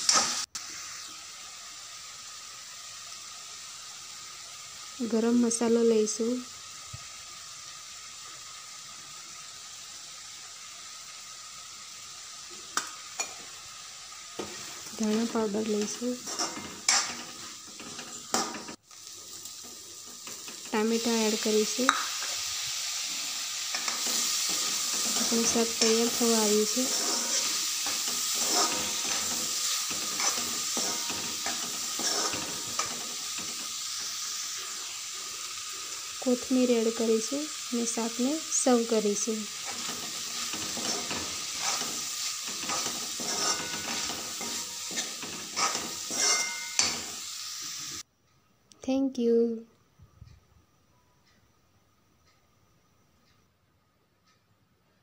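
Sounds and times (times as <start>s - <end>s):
vegetables sizzling in a pan: 0.0s - 48.1s
metal spatula scraping pan: 14.4s - 18.8s, 23.7s - 34.2s, 39.5s - 47.2s
sharp metal clink: 42.7s - 47.1s.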